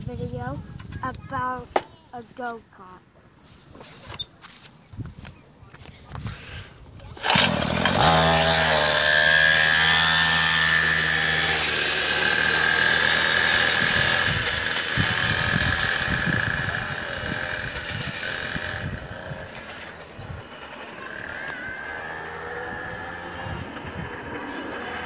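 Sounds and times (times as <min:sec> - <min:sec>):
go-kart engine running: 0:07.0 - 0:25.0.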